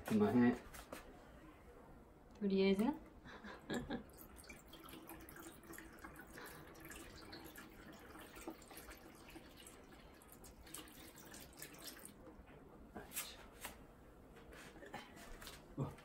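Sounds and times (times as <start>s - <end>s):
water trickling and splashing: 4.0s - 12.3s.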